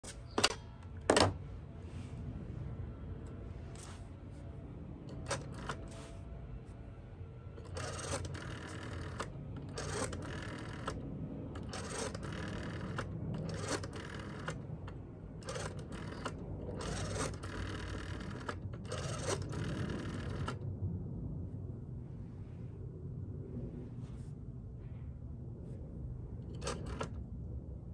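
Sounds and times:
rotary phone dial whirring: 0:00.0 - 0:01.4, 0:05.0 - 0:06.2, 0:07.6 - 0:20.6, 0:26.4 - 0:27.2.

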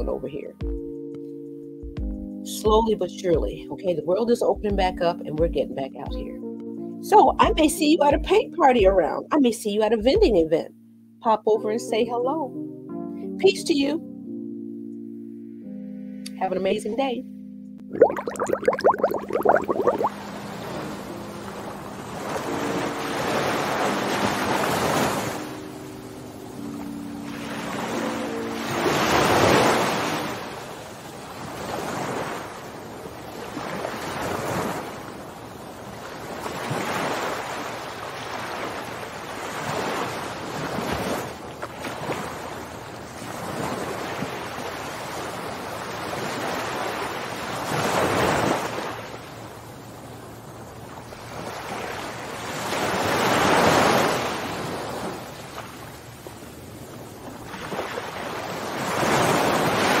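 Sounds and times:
waves washing in: 0:18.0 - 1:00.0.

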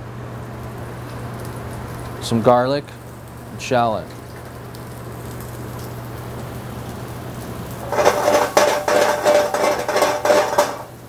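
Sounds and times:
oil sizzling in pan: 0:00.0 - 0:11.0
pan clattering on metal grate: 0:07.8 - 0:11.0.

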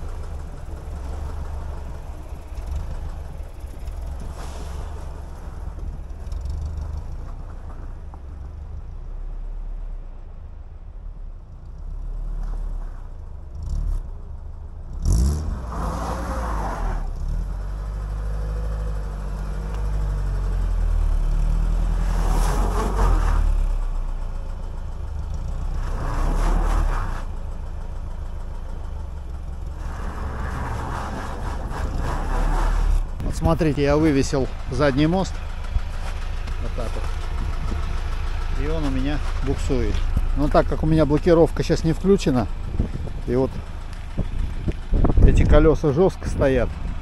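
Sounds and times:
car engine revving: 0:13.5 - 0:24.1, 0:25.0 - 0:47.0.

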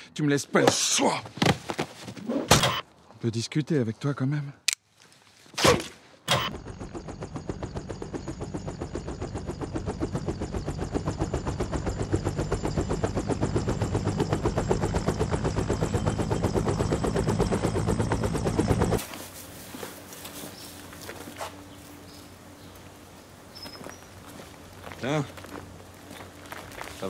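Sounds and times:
engine running with rapid pulse: 0:06.3 - 0:19.1.

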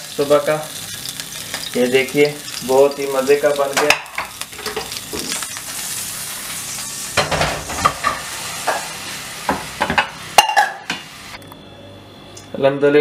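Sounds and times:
oil sizzling in frying pan: 0:00.0 - 0:11.4.

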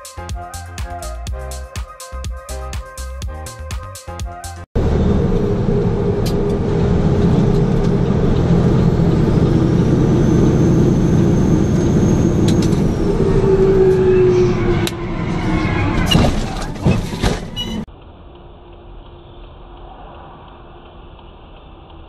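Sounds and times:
road noise: 0:04.7 - 0:22.0
truck engine droning: 0:04.8 - 0:21.9.

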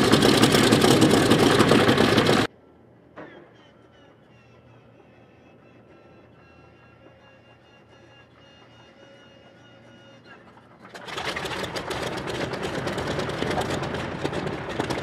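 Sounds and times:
radial engine running: 0:00.0 - 0:02.5.

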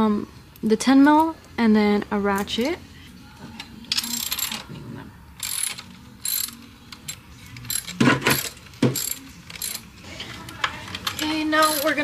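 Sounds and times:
hand ratchet clicking: 0:05.4 - 0:09.8, 0:11.0 - 0:12.0.

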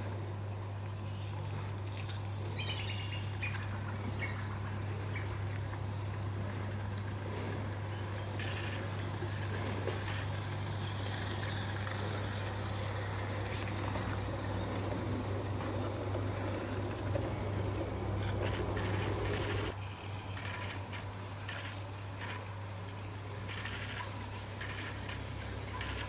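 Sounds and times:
low hum: 0:00.0 - 0:21.6
model train motor and wheels: 0:06.4 - 0:22.5, 0:23.4 - 0:26.0.

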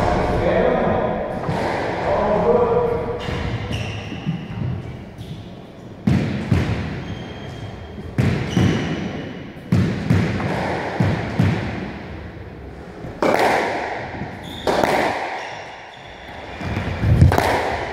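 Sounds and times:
squash ball smacks echoing: 0:00.0 - 0:04.8, 0:06.0 - 0:07.0, 0:08.1 - 0:12.2, 0:13.1 - 0:15.8, 0:16.7 - 0:17.9.

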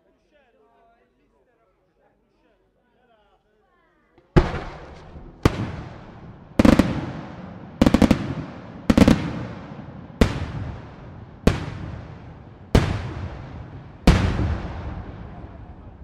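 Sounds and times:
firework shells bursting: 0:04.3 - 0:15.5.

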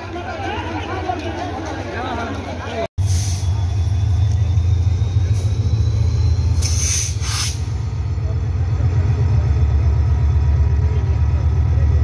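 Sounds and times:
diesel locomotive engine rumbling: 0:00.0 - 0:12.0
burst of hiss: 0:06.6 - 0:07.8.

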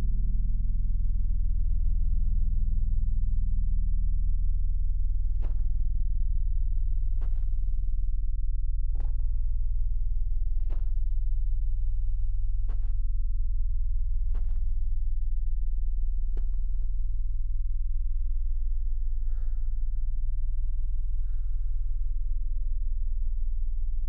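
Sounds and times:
low drone: 0:19.1 - 0:23.0.

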